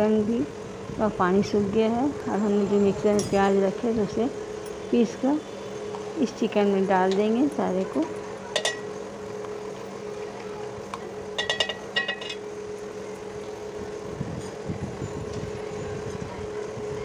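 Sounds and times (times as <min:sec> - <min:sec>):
steady low hum: 0:00.0 - 0:17.0
utensil clinking on metal pot: 0:08.6 - 0:08.9, 0:11.4 - 0:12.4.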